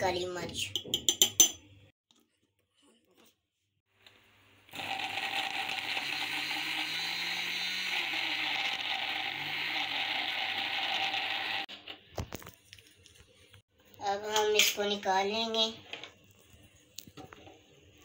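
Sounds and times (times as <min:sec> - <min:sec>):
food chopper motor running: 0:04.7 - 0:11.7.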